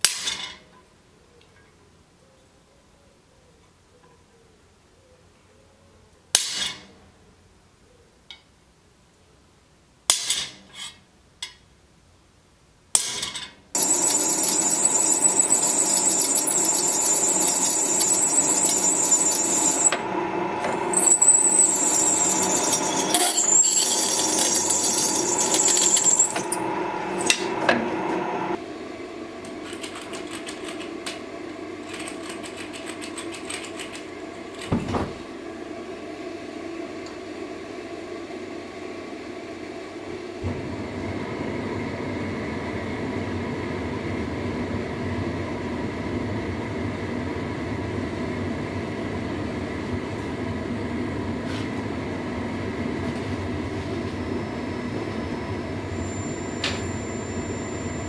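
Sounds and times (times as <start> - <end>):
drill press whining through steel: 13.8 - 28.6, 55.0 - 58.0
machine hum: 13.8 - 34.6, 40.4 - 58.0.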